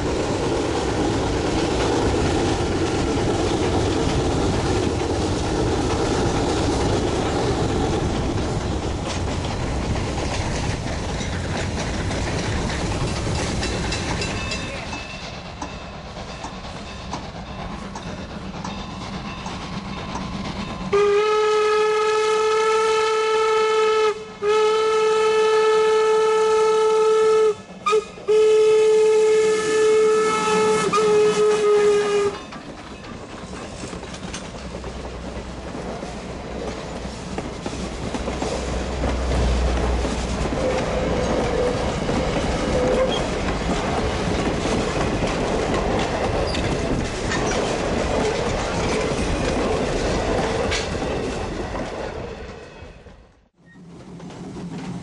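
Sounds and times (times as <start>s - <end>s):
wheels clacking over rail joints: 0.0s - 20.9s, 32.0s - 55.0s
steam locomotive rumbling past: 0.0s - 55.0s
steam whistle blowing: 20.9s - 32.4s.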